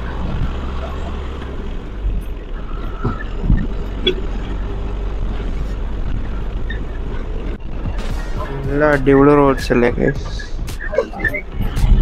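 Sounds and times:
bus engine and road rumble: 0:00.0 - 0:12.0.

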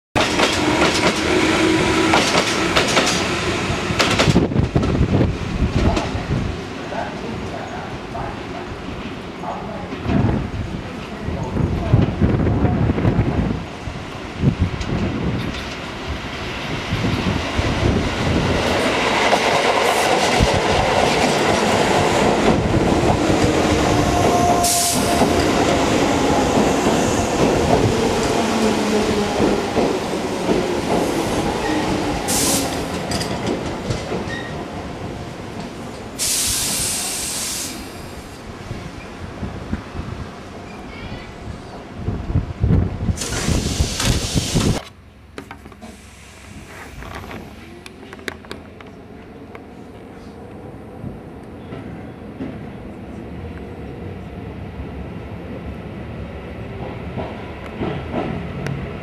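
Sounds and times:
wheels clacking over rail joints: 0:00.2 - 0:03.4
electric train passing: 0:00.2 - 0:40.8
short hiss: 0:36.2 - 0:38.2, 0:43.2 - 0:44.8, 0:45.8 - 0:47.6.

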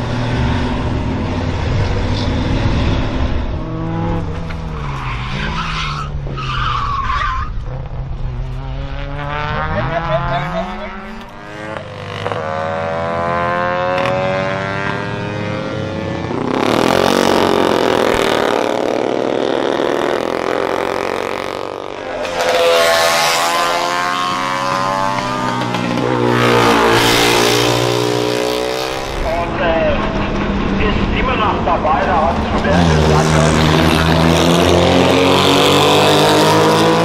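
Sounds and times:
racing motorcycles passing: 0:00.0 - 0:06.8, 0:07.4 - 0:37.0
rally car passing at full throttle: 0:00.0 - 0:37.0.

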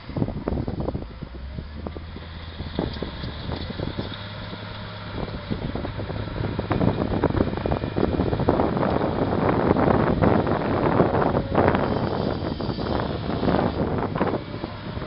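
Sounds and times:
diesel engine running: 0:00.0 - 0:15.0
wind buffeting microphone: 0:00.0 - 0:15.0.

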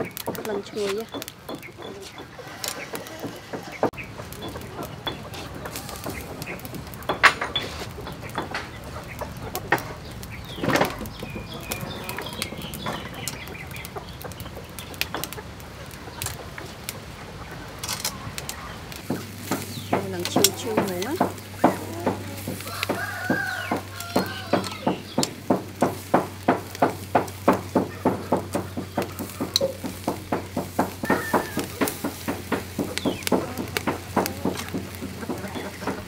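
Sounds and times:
chickens clucking: 0:00.0 - 0:36.0
metal tongs clicking on grill: 0:17.8 - 0:36.0.

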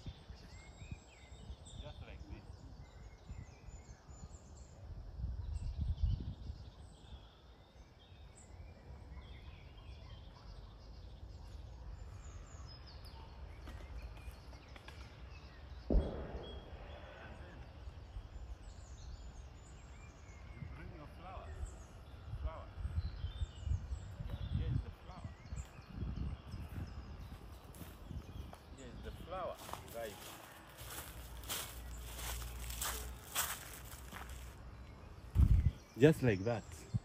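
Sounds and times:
songbirds chirping: 0:00.0 - 0:37.0
sudden thump: 0:15.9 - 0:16.9.

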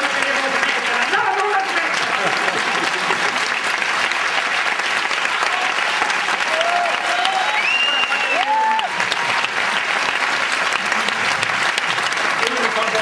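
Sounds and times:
audience applauding: 0:00.0 - 0:13.0
crowd cheering: 0:00.0 - 0:13.0.

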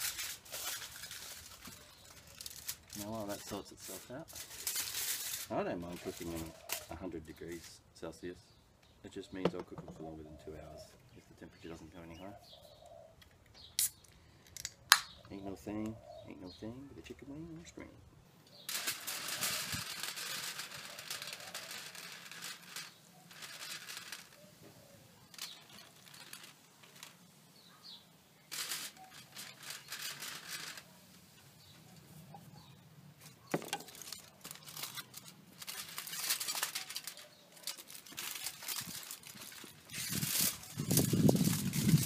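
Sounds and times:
aluminium foil crinkling: 0:00.0 - 0:07.7, 0:18.6 - 0:31.8, 0:32.5 - 0:42.0.

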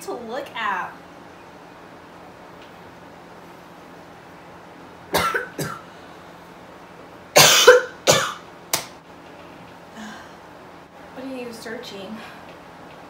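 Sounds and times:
woman coughing: 0:05.1 - 0:05.8, 0:07.4 - 0:08.4.

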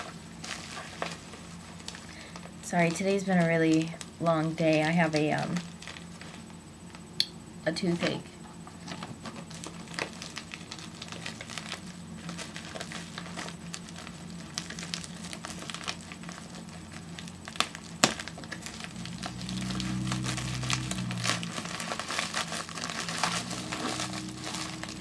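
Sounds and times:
packing material crinkling: 0:00.0 - 0:07.0, 0:09.1 - 0:25.0
low steady hum: 0:00.0 - 0:25.0
sharp snaps: 0:07.2 - 0:07.4.

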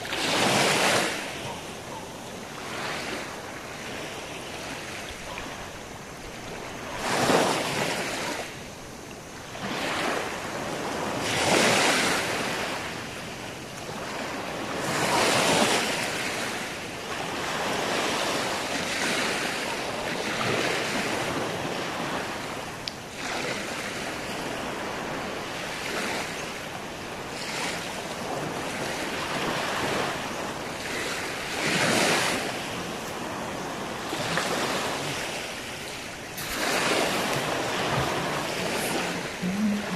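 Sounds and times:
waves breaking on beach: 0:00.0 - 0:39.9
wind on microphone: 0:27.0 - 0:39.9.

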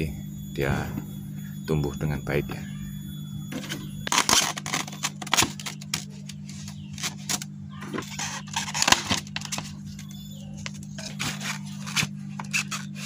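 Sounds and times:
low hum: 0:00.0 - 0:13.0
plastic covers crackling and clicking: 0:03.6 - 0:13.0.

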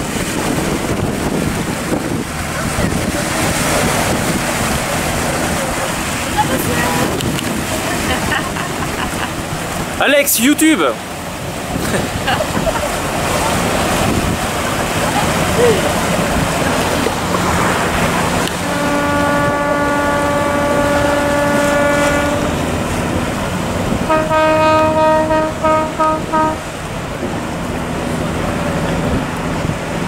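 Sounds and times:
boat engine running: 0:00.0 - 0:30.0
wind and water rushing: 0:00.0 - 0:30.0
boat horn blasts: 0:17.6 - 0:26.9.

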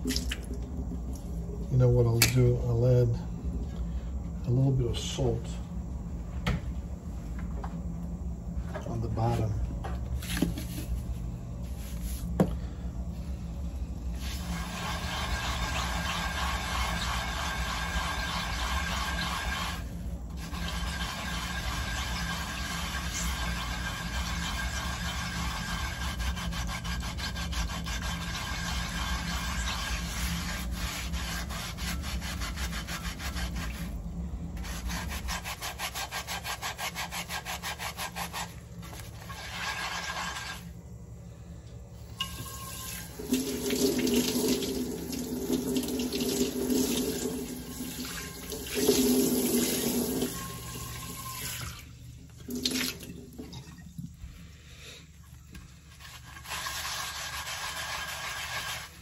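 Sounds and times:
tap water running: 0:14.2 - 0:31.5, 0:42.2 - 0:54.2
sponge scrubbing clay pan: 0:14.2 - 0:34.0, 0:34.6 - 0:40.7, 0:55.7 - 0:59.0.

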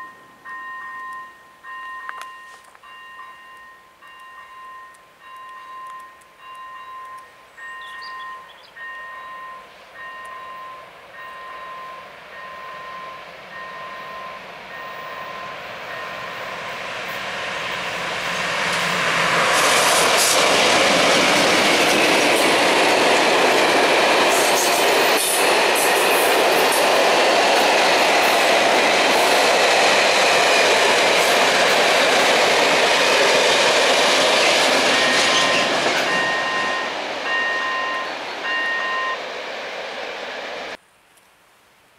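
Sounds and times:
level crossing warning bell: 0:00.0 - 0:16.9, 0:32.8 - 0:39.2
diesel locomotives passing: 0:00.0 - 0:40.8.

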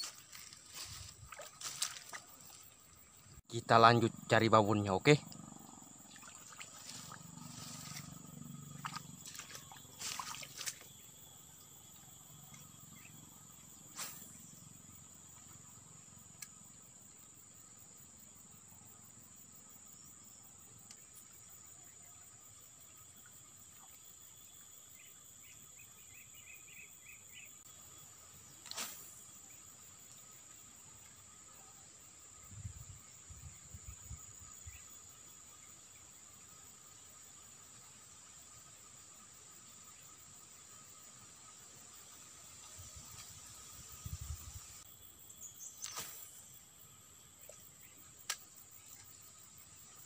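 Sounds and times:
high-pitched insect whine: 0:00.0 - 0:50.0.

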